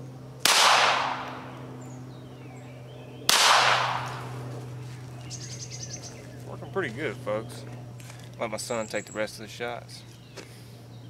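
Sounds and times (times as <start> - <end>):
pistol shots echoing: 0.4 - 1.5, 3.3 - 4.3.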